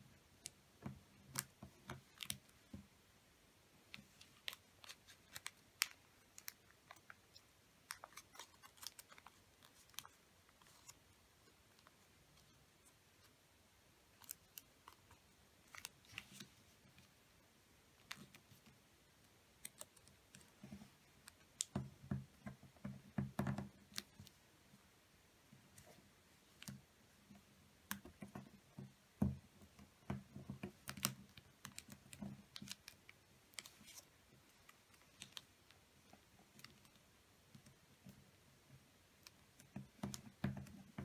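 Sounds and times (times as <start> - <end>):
paper folding and rustling: 3.9 - 7.2, 7.9 - 12.5, 14.2 - 17.1, 30.7 - 35.6.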